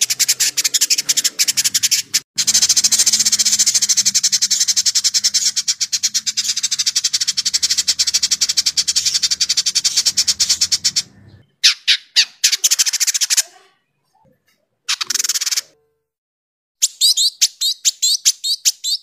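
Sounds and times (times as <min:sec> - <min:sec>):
bird chattering high notes: 0:00.0 - 0:13.6.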